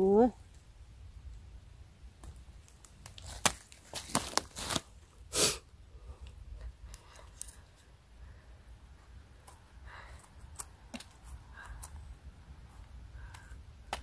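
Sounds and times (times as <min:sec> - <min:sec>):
mushroom stem snapping and crunching: 0:02.2 - 0:04.9, 0:10.3 - 0:12.0
tearing rustle in moss: 0:02.6 - 0:05.0.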